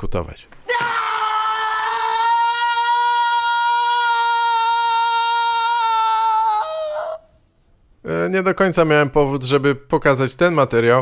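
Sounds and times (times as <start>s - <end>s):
woman screaming: 0.7s - 7.4s.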